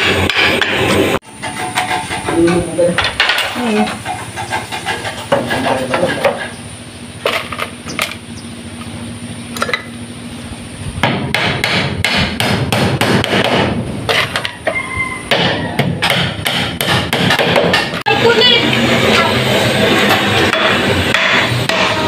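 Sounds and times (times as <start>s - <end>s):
hammer nailing: 11.0s - 18.0s.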